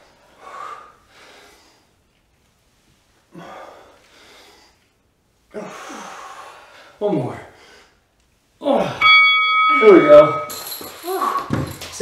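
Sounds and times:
person breathing hard: 0:00.0 - 0:02.0, 0:03.3 - 0:08.0.

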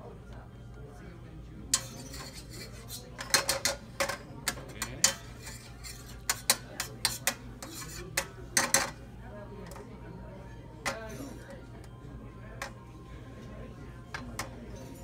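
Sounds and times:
metal utensils clinking on skillet: 0:01.7 - 0:09.0.

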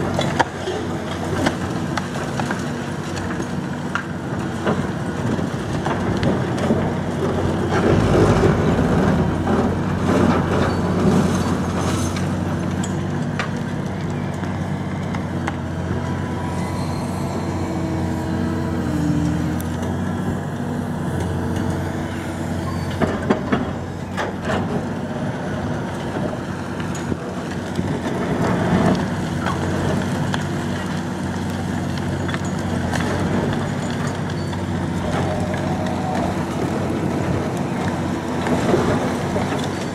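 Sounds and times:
diesel excavator engine running: 0:00.0 - 0:39.9.

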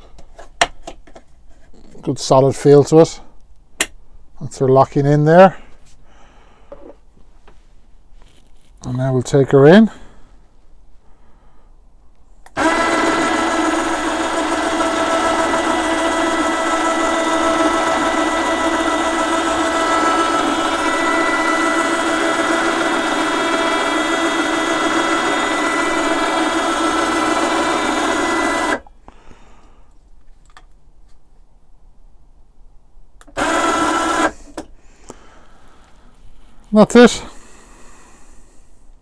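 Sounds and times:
electric winch motor whining: 0:12.5 - 0:28.9, 0:33.3 - 0:34.6.

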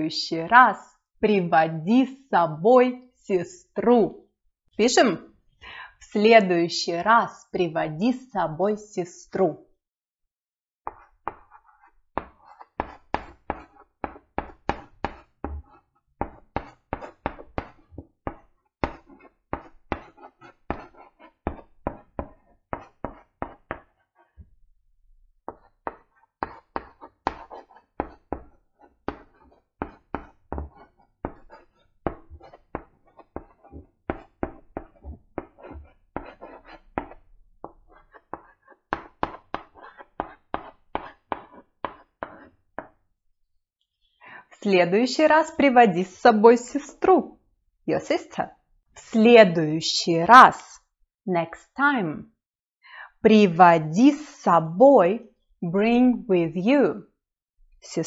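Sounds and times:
chalk tapping on blackboard: 0:10.9 - 0:24.2, 0:25.5 - 0:43.0.

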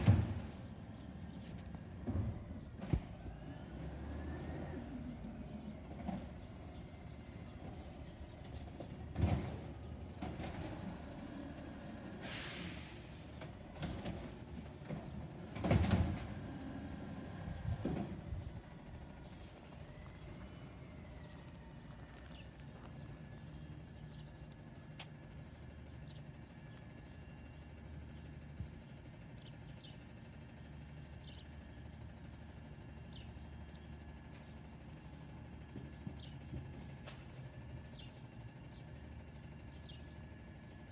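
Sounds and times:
truck engine running: 0:00.0 - 0:40.9
air hiss: 0:12.2 - 0:13.2.

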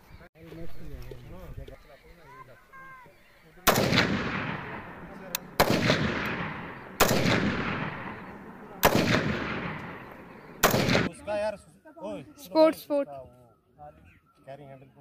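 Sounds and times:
rifle shots with echo: 0:03.6 - 0:11.2.

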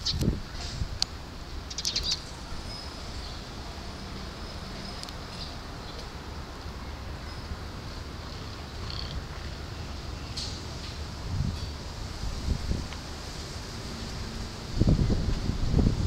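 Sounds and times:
sparrows chirping: 0:01.7 - 0:06.0.

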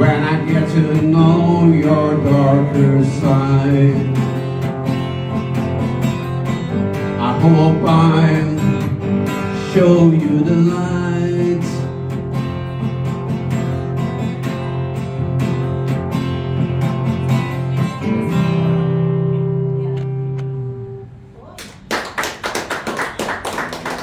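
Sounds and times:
acoustic guitar playing: 0:00.0 - 0:21.3
people clapping: 0:21.5 - 0:24.0.

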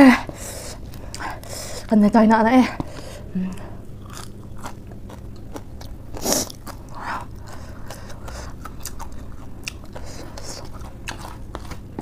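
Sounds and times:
crunchy chewing of dry noodles: 0:02.9 - 0:12.0.

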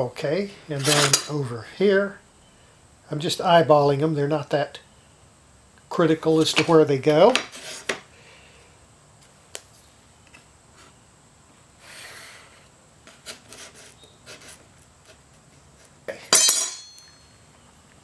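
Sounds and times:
steel straightedge clinking: 0:16.3 - 0:17.3.

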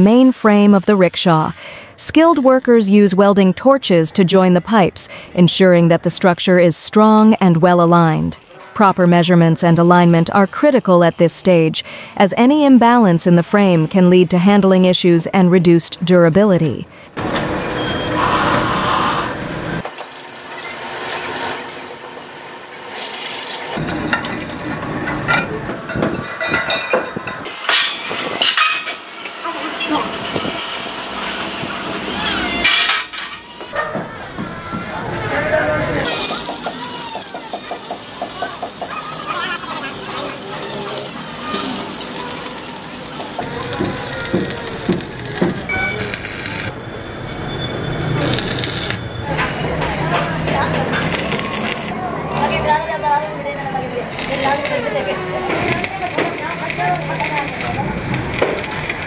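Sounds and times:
welding arc crackling hiss: 0:20.4 - 0:23.8, 0:36.0 - 0:46.8, 0:48.2 - 0:49.0, 0:51.0 - 0:52.6, 0:54.1 - 0:59.0
welding arc pops: 0:36.0 - 0:46.7, 0:48.2 - 0:49.0, 0:51.0 - 0:52.7, 0:54.1 - 0:54.8, 0:55.6 - 0:59.0
drill press drilling steel: 0:36.1 - 0:46.7.

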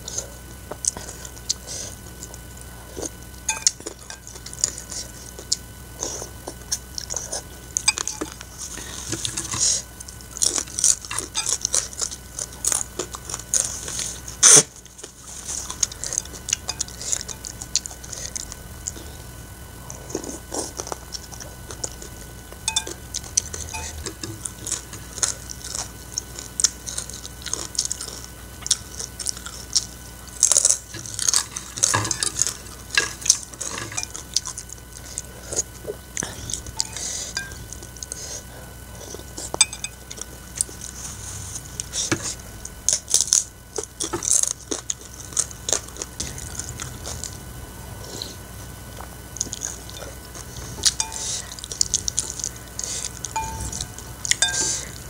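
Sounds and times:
chewing: 0:00.0 - 0:55.0
cutlery clinking on ceramic bowl: 0:03.5 - 0:04.3, 0:07.9 - 0:08.4, 0:22.7 - 0:23.0, 0:36.8 - 0:37.6, 0:39.6 - 0:40.0, 0:50.8 - 0:51.4, 0:53.4 - 0:54.9.

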